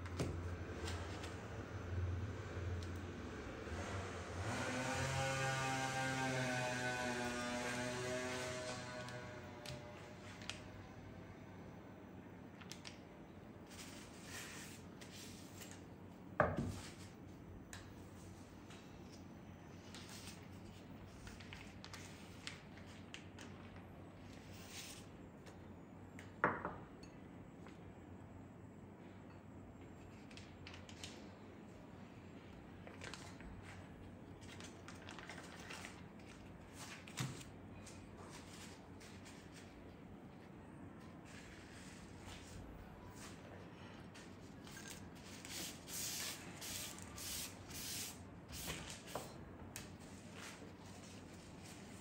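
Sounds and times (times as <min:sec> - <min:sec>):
paper wrapper rustling: 0:34.4 - 0:37.5.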